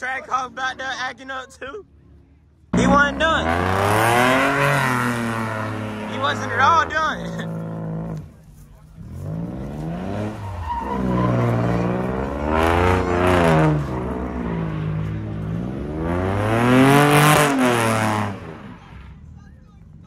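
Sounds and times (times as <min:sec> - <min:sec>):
car engine revving: 0:02.4 - 0:20.0
tyres squealing on asphalt: 0:08.9 - 0:20.0.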